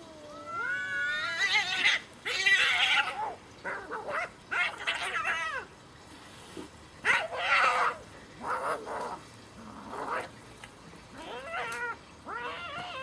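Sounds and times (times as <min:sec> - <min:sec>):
cats yowling: 0:00.0 - 0:05.7, 0:07.0 - 0:09.2, 0:11.1 - 0:13.0
cats screeching: 0:00.2 - 0:05.7, 0:07.0 - 0:08.8, 0:11.1 - 0:13.0.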